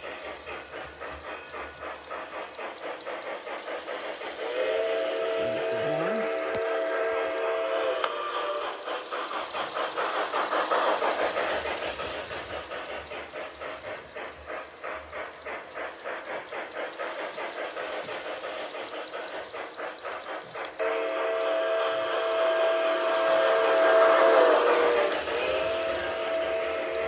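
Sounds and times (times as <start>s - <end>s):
steam chuffing: 0.0s - 27.0s
toy train steam whistle: 4.4s - 8.9s, 20.7s - 27.0s.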